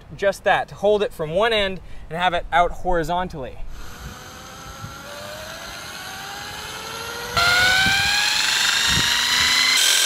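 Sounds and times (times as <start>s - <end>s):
electric drill motor whine: 3.7s - 10.0s.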